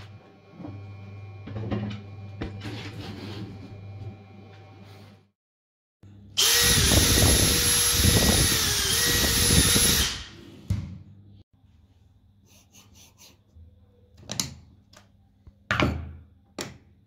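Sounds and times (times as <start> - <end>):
cordless drill motor whine: 6.4 - 10.3.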